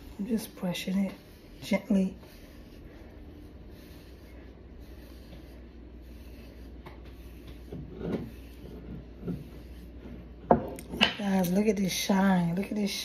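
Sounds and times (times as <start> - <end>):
hairbrush rubbing through hair: 0.0 - 10.3.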